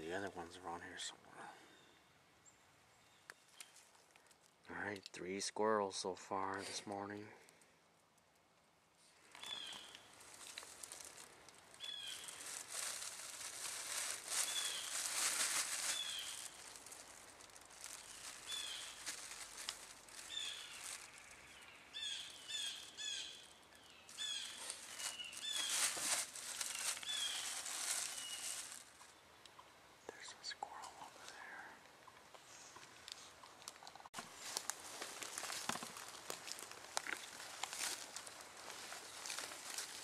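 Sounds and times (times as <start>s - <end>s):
bird chirping: 1.6s - 3.9s, 9.2s - 10.1s, 11.7s - 12.6s, 14.3s - 15.0s, 15.8s - 16.9s, 17.8s - 19.4s, 20.1s - 26.0s, 26.6s - 34.0s
plastic bag crinkling: 9.3s - 23.5s, 24.1s - 29.0s, 33.6s - 40.0s.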